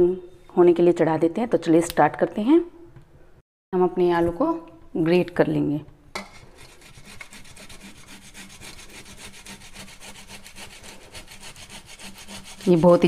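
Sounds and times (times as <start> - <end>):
potato rasping on metal grater: 6.4 - 13.0.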